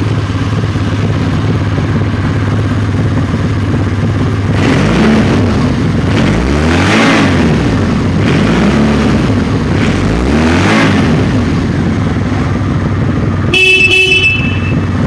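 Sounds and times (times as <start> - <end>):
motorcycle engine revving and idling: 0.0 - 15.0
motorcycle horn beeps: 13.4 - 15.0.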